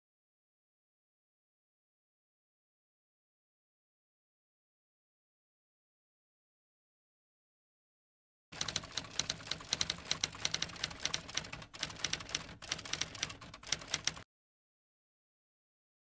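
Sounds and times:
typewriter keys clacking: 8.6s - 14.2s.

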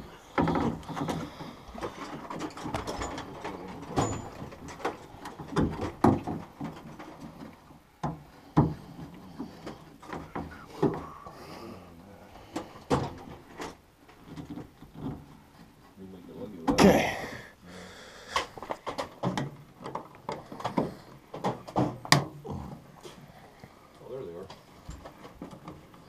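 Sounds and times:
clicks and clunks on metal parts: 0.4s - 11.0s.

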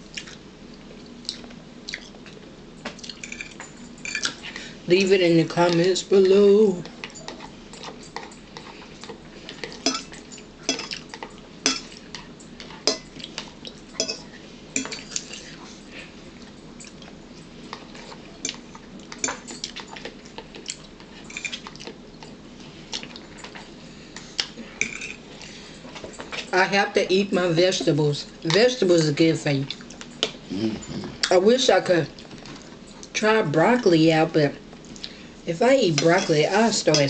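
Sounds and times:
forks clinking against dishes: 3.2s - 4.4s, 9.6s - 12.0s, 13.9s - 15.5s, 20.7s - 21.8s, 24.8s - 25.2s, 36.0s - 37.0s.

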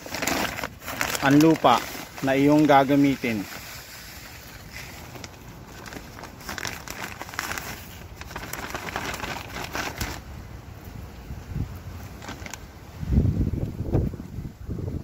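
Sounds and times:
soil pouring into plastic tub: 0.0s - 10.2s
plastic sack crinkling: 0.0s - 10.4s, 12.0s - 12.7s.

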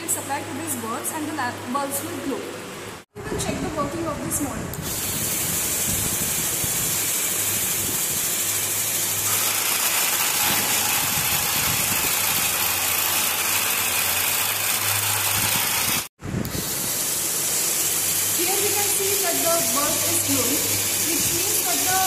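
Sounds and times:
small electric motor humming: 4.8s - 22.0s.

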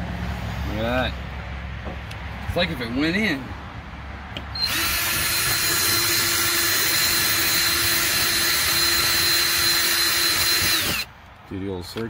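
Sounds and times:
cordless drill whining: 4.5s - 11.1s.

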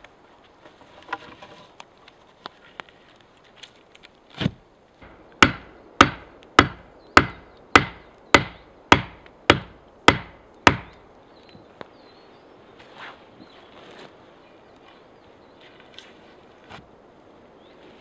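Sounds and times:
wooden stake being pounded: 4.4s - 11.0s.

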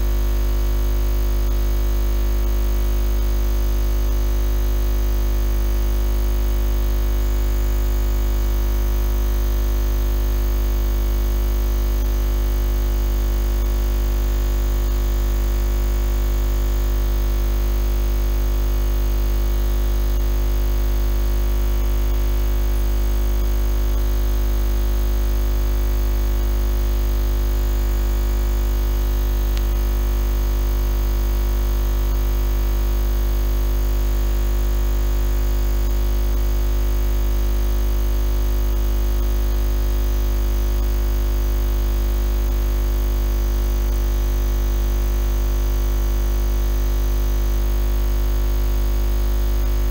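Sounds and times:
loud steady low hum: 15.3s - 35.0s, 48.8s - 49.9s.

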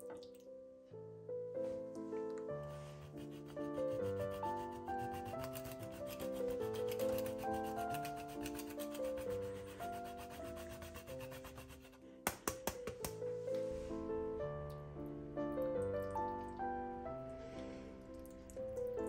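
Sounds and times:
cheese scraping on metal grater: 3.0s - 12.0s.

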